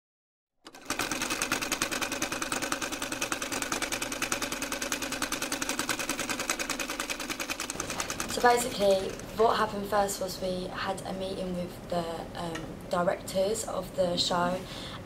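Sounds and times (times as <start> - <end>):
sewing machine running: 0.6 - 9.4.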